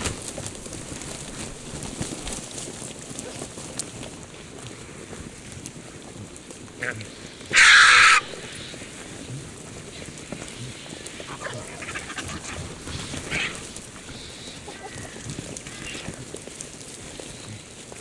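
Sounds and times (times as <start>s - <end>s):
vultures harsh calls: 6.8s - 17.8s.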